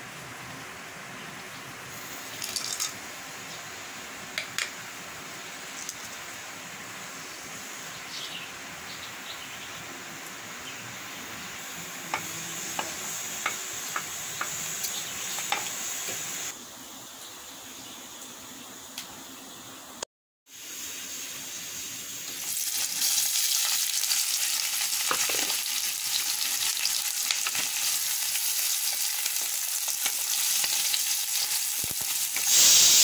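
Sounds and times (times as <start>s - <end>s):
spices sizzling in hot oil: 1.4s - 16.6s, 20.5s - 33.0s
spices clattering into pot: 2.4s - 3.0s, 25.0s - 32.6s.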